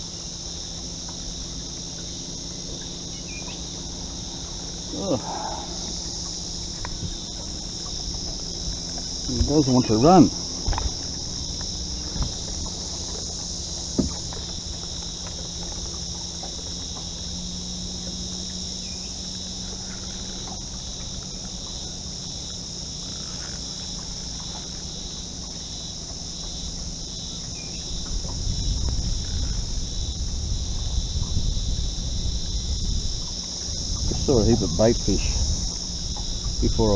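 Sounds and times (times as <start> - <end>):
wind rumbling on microphone: 0.0 - 18.2, 23.0 - 36.9
insect chorus drone: 0.0 - 36.9.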